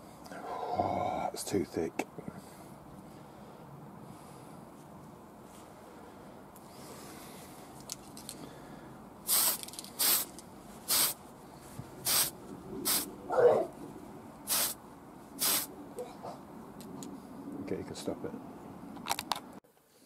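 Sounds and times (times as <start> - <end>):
aerosol spray can hissing: 9.3 - 11.2, 12.0 - 13.1, 14.5 - 14.8, 15.4 - 15.7.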